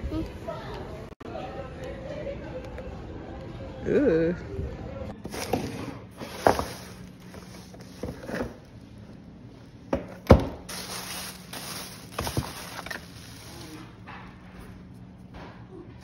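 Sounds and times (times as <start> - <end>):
items knocking on wooden table: 9.9 - 10.6
plastic packaging crinkling: 10.6 - 14.0.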